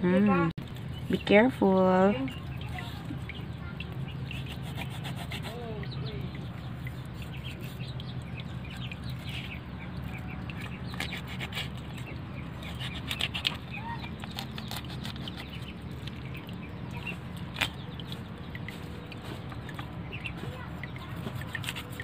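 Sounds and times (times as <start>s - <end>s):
faint bird calls: 2.2s - 22.0s
cleaver slicing fish: 4.0s - 5.9s, 9.0s - 16.2s, 17.0s - 22.0s.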